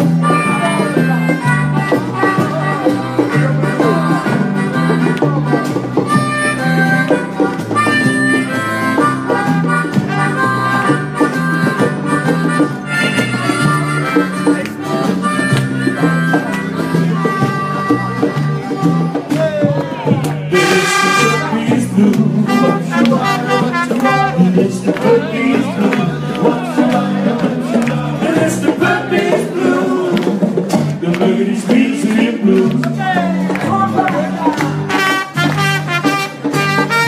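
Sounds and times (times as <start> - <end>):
bass line: 0.0 - 37.0
guitar: 0.0 - 37.0
trumpet lead: 20.5 - 21.8, 22.4 - 25.2, 34.9 - 37.0.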